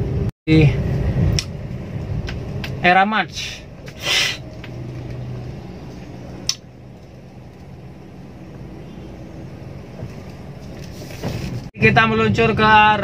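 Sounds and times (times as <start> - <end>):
car engine and road noise: 0.0 - 13.0
sharp click: 1.3 - 1.6.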